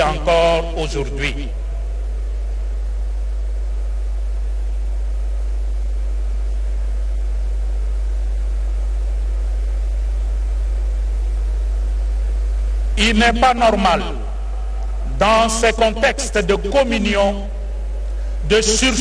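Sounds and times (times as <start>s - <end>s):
sound system hum and hiss: 0.0s - 19.0s.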